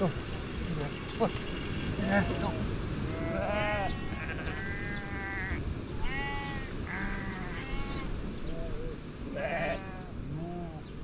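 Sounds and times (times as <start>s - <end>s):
sheep bleating: 1.9s - 8.1s, 9.3s - 10.8s.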